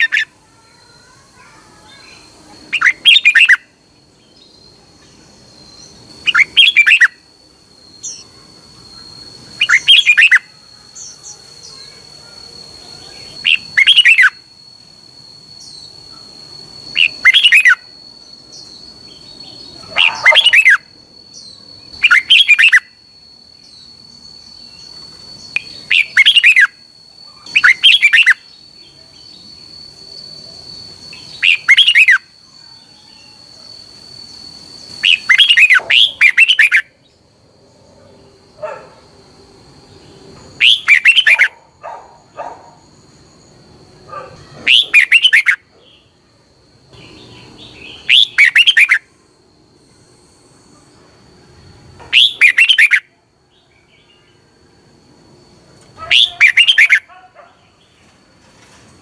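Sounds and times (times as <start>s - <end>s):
bird singing warbled phrases: 0.0s - 7.2s, 7.8s - 12.3s, 13.0s - 14.4s, 15.6s - 23.0s, 23.6s - 29.7s, 31.1s - 33.3s, 34.9s - 37.2s, 40.0s - 42.6s, 44.1s - 46.1s, 46.9s - 49.1s, 52.1s - 54.4s, 55.9s - 57.9s.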